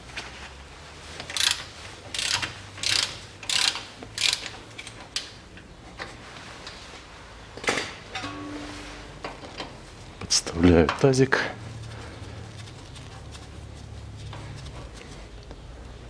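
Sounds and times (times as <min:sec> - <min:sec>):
hand ratchet clicking: 0:01.3 - 0:04.6.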